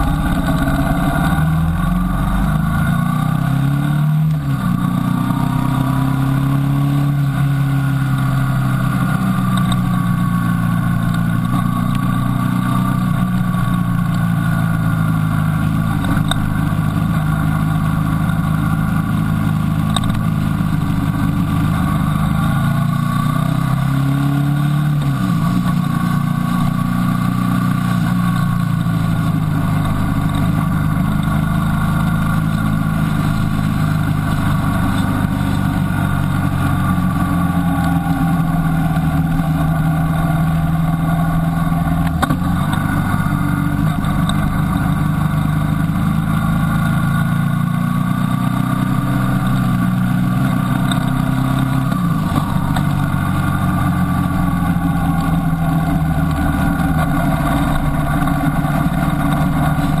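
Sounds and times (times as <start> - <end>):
motorcycle engine running: 0.0 - 60.0
wind and road noise: 0.0 - 60.0.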